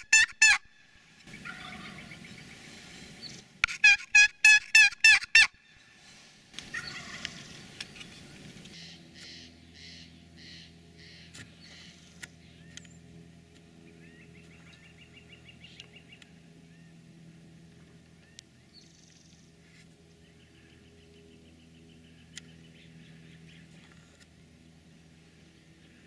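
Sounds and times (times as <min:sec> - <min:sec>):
turkey gobble: 0:00.0 - 0:00.6, 0:01.3 - 0:02.3, 0:03.7 - 0:05.6, 0:06.6 - 0:07.5
soft bird calls: 0:01.3 - 0:03.5, 0:05.7 - 0:13.0
bird twittering: 0:08.8 - 0:13.0.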